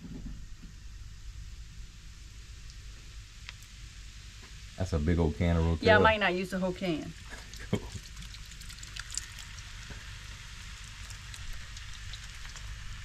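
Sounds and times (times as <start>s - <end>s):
vegetables sizzling in a pot: 0.0s - 13.0s
canned tomatoes pouring: 7.4s - 10.1s.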